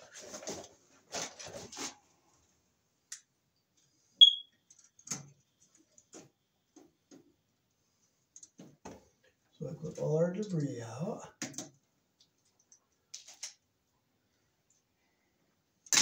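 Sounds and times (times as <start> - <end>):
short high-pitched beep: 4.2 - 4.6.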